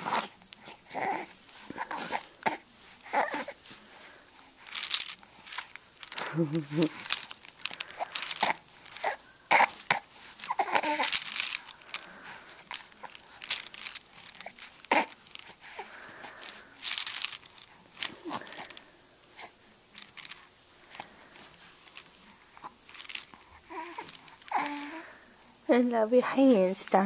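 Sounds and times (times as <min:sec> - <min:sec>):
baby vocal sounds: 0:00.0 - 0:03.6, 0:07.9 - 0:11.6, 0:14.4 - 0:15.9, 0:23.6 - 0:25.1
baby chewing plastic toys: 0:00.0 - 0:25.6.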